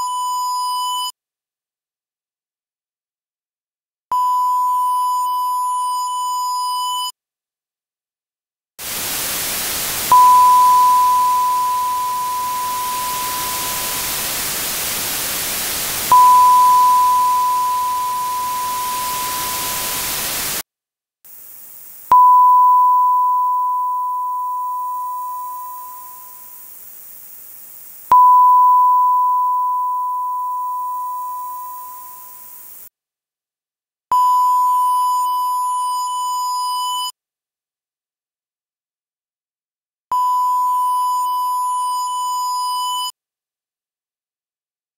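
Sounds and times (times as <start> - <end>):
distortion buzz: 8.8 - 20.6
dither hiss: 8.8 - 20.6, 21.3 - 22.1, 25.9 - 28.1
sine-wave ping: 10.1 - 14.3, 16.1 - 20.4, 22.1 - 26.6, 28.1 - 32.7.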